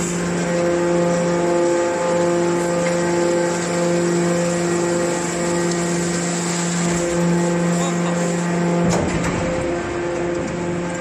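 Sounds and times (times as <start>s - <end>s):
hydraulic baler humming: 0.0s - 11.0s.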